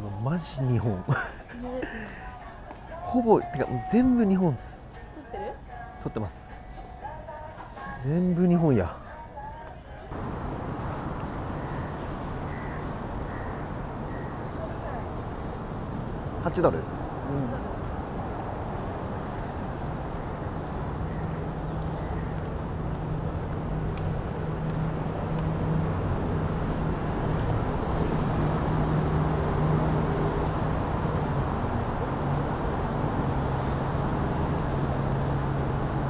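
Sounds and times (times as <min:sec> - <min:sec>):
city street traffic: 0:00.0 - 0:36.0.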